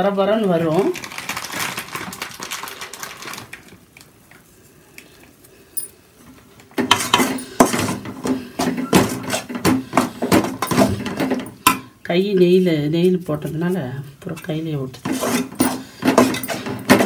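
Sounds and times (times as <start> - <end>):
metal ladle scraping a pan: 14.4 - 17.0.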